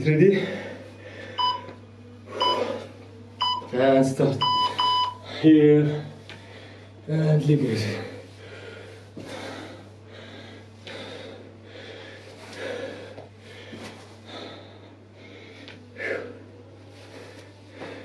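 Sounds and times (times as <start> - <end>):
steady low hum: 0.0 - 18.0
man breathing hard: 0.3 - 3.0, 4.4 - 7.1, 7.8 - 18.0.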